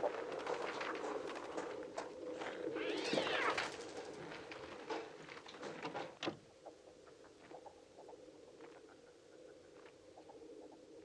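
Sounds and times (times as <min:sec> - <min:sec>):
electronic bird murmur: 0:02.6 - 0:03.8
screeching cry rising and falling: 0:02.8 - 0:03.8.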